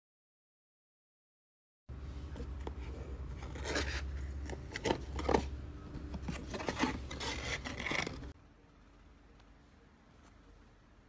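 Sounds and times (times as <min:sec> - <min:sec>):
cardboard box rubbing and scraping: 0:06.1 - 0:08.3.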